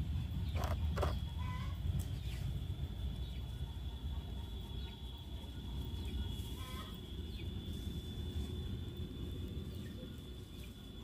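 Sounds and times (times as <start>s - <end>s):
chicken clucking: 0.4s - 2.4s.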